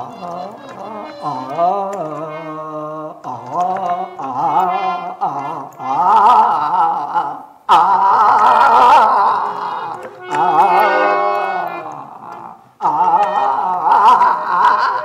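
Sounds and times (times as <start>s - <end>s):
harmonium: 0.0s - 1.7s, 9.8s - 12.0s
man singing held notes: 0.0s - 15.0s.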